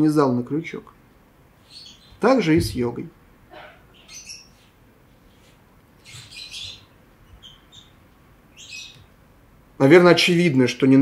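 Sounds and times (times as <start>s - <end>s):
faint bird chirps: 1.6s - 2.3s, 3.5s - 9.1s.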